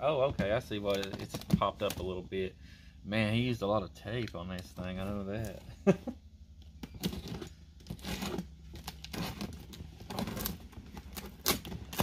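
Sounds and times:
knife cutting packing tape: 0:06.8 - 0:12.0.

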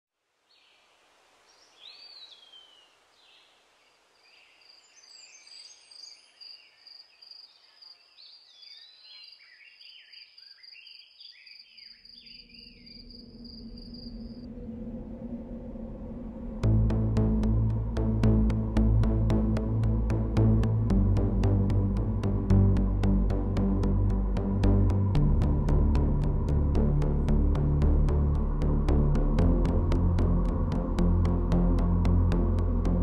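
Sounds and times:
birds chirping and calling: 0:05.1 - 0:14.5
high insect trill: 0:11.9 - 0:14.5
low drone: 0:12.4 - 0:33.0.

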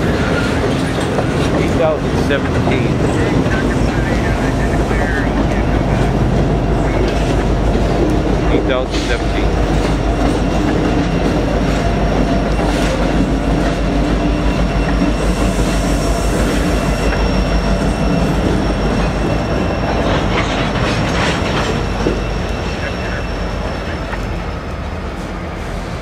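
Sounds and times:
train wheels clacking on rail joints: 0:00.0 - 0:23.4
train rumble: 0:00.0 - 0:26.0.

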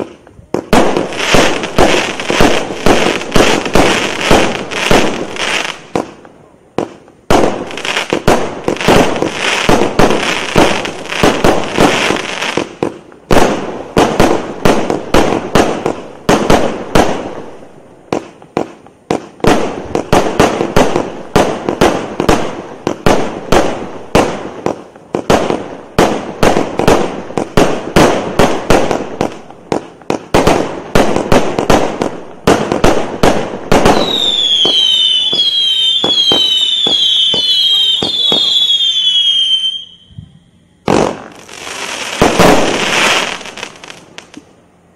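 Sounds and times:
fireworks shots and crackling: 0:00.0 - 0:44.6
falling firework whistles: 0:33.7 - 0:44.5.

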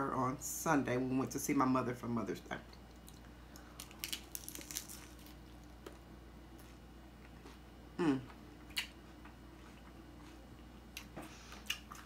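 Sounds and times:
taco shell crunching: 0:02.9 - 0:06.0
person humming: 0:08.0 - 0:08.4.

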